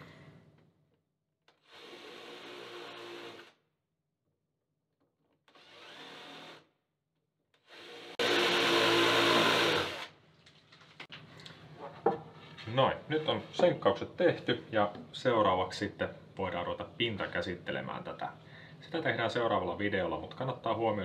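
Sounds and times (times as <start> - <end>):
cordless drill drilling wood: 1.5 - 3.6, 5.4 - 6.7, 7.6 - 10.2.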